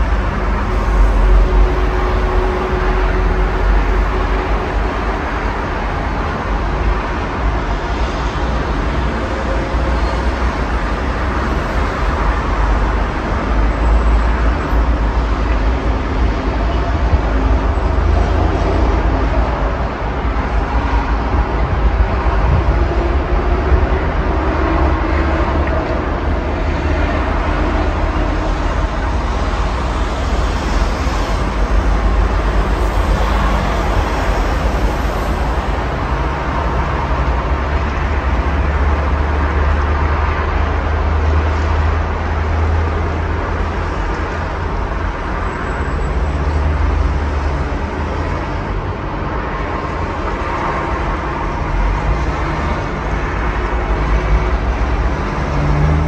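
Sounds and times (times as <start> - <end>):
cars and vans passing: 0.0 - 56.0
deep traffic rumble: 0.0 - 56.0.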